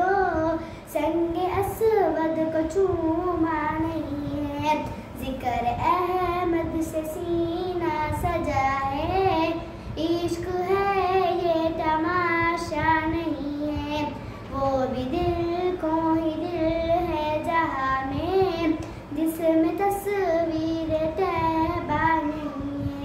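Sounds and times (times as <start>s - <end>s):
girl singing unaccompanied: 0.0s - 23.0s.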